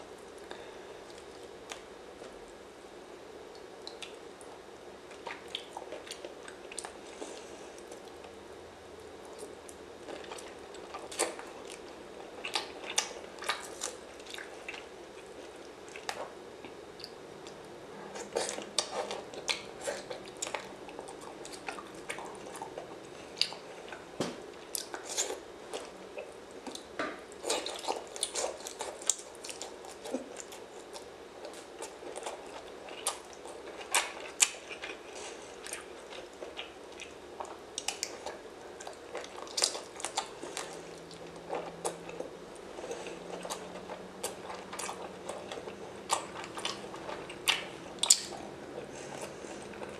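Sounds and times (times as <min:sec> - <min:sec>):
person chewing and crunching food: 0:03.5 - 0:49.9.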